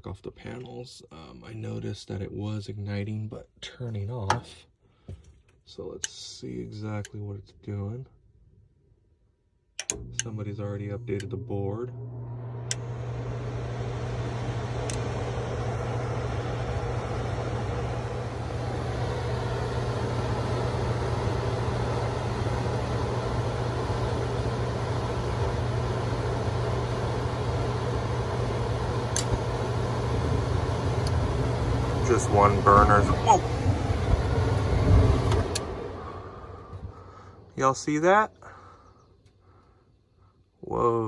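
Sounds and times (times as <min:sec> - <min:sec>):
gas burners rushing: 0:09.8 - 0:38.9
furnace motor hum: 0:09.8 - 0:41.0.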